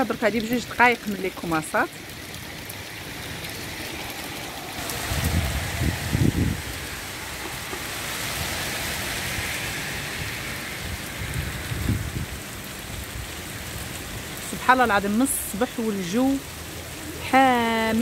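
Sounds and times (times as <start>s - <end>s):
heavy rain on pavement and cars: 0.0s - 18.0s
low rumbles: 2.6s - 14.6s.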